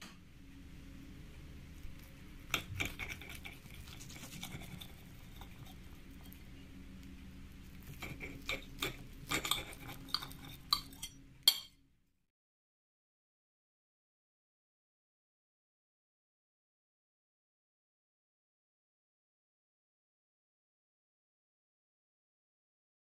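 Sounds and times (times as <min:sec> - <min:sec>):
faint low hum: 0:00.0 - 0:12.2
cutlery scraping a ceramic plate: 0:02.5 - 0:06.4, 0:07.8 - 0:11.7.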